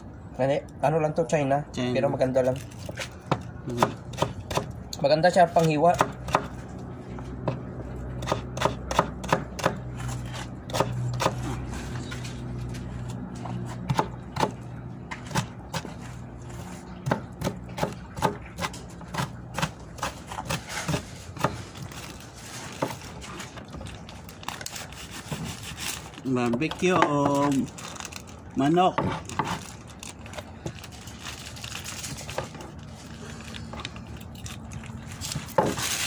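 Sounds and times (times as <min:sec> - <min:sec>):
knife chopping on cutting board: 0:03.3 - 0:04.7, 0:05.6 - 0:06.6, 0:07.4 - 0:11.6, 0:13.6 - 0:16.0, 0:17.0 - 0:21.7.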